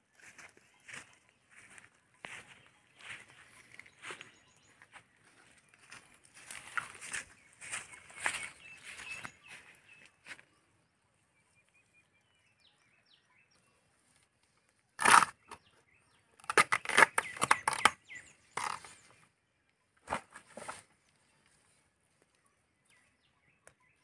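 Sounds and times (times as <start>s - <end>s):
palm fibres tearing by hand: 15.0s - 15.6s, 16.4s - 18.0s, 18.6s - 18.9s.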